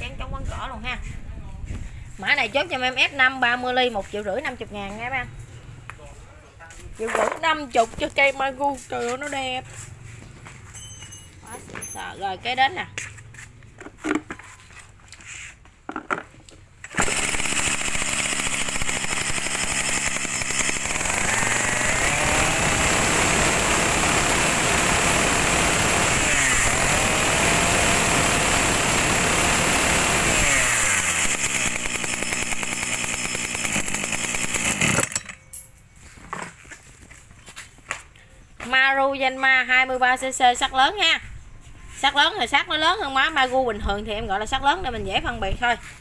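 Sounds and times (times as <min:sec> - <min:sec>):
brush cutter engine revving: 0:16.9 - 0:35.2.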